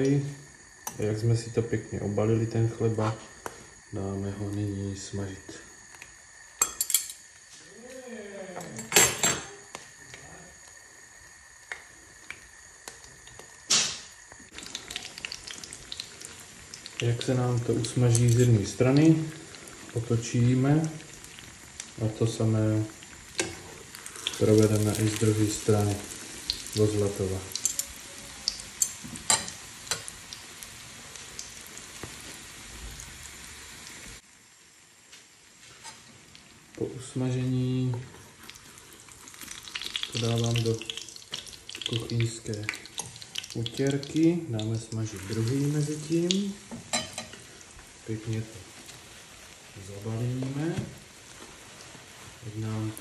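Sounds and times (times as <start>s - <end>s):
frying oil hiss: 0.0s - 53.0s
oil popping and crackling: 11.6s - 34.2s, 37.5s - 53.0s.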